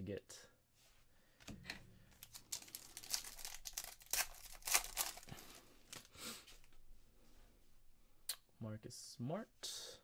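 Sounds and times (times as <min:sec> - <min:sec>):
foil wrapper tearing and crinkling: 0:02.2 - 0:06.1.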